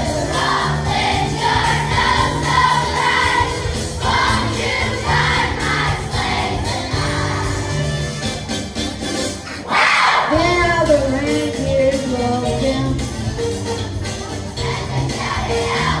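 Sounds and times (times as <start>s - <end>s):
children's choir singing: 0.0s - 8.1s, 9.6s - 10.4s, 14.5s - 16.0s
instrumental accompaniment: 0.0s - 9.7s, 10.4s - 16.0s.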